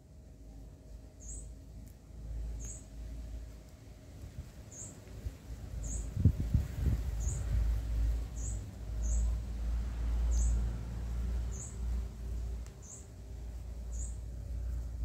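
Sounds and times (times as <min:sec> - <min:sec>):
small bird chirping: 0:01.2 - 0:01.6, 0:02.5 - 0:02.9, 0:04.7 - 0:05.1, 0:05.8 - 0:07.6, 0:08.2 - 0:09.4, 0:10.2 - 0:10.6, 0:11.4 - 0:12.0, 0:12.7 - 0:13.2, 0:13.8 - 0:14.3.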